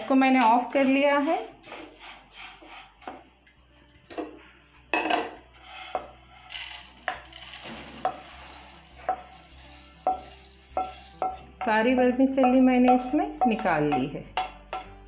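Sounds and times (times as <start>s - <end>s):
spatula knocking against pan: 10.1s - 14.9s.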